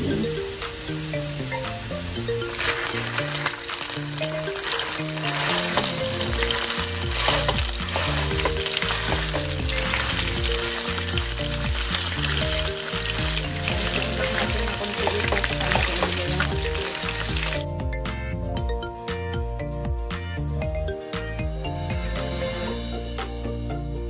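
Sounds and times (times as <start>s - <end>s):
meat sizzling in hot oil: 0.0s - 17.6s
wooden spatula stirring meat: 2.4s - 17.6s.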